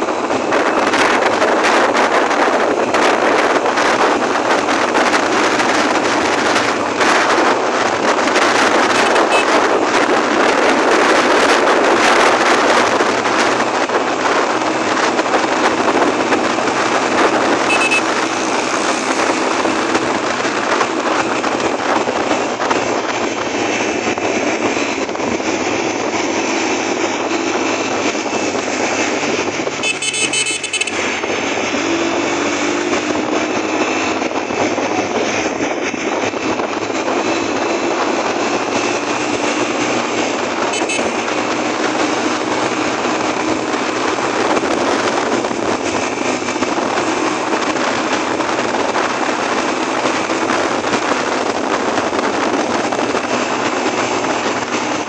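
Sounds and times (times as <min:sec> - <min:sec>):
motorcycle engine and road noise: 0:00.0 - 0:55.0
wind buffeting microphone: 0:00.0 - 0:55.0
vehicle horn: 0:09.3 - 0:09.6, 0:17.7 - 0:18.2, 0:29.8 - 0:31.0, 0:40.7 - 0:41.2.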